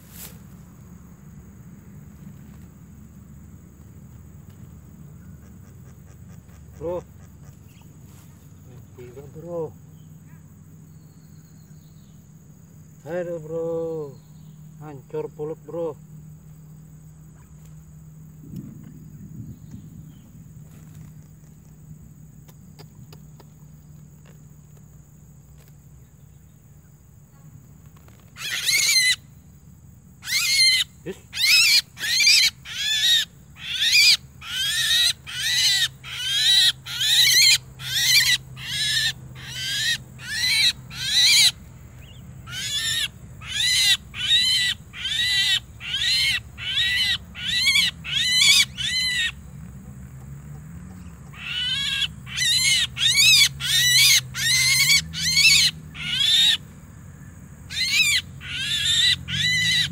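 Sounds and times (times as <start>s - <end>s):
myna harsh rasping calls: 28.4s - 29.2s, 30.2s - 41.6s, 42.4s - 49.5s, 51.3s - 56.7s, 57.7s - 59.9s.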